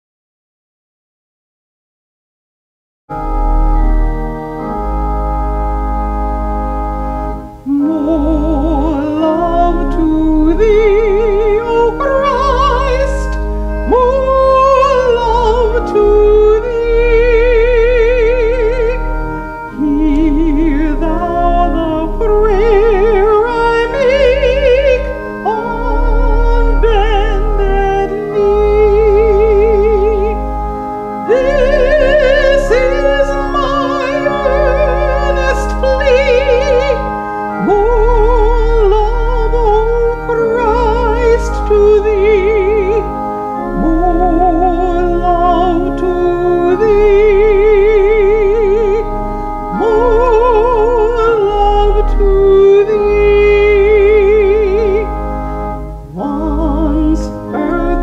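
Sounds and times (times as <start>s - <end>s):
sustained keyboard chords: 3.1s - 58.0s
woman singing a hymn: 7.6s - 55.2s, 56.1s - 58.0s.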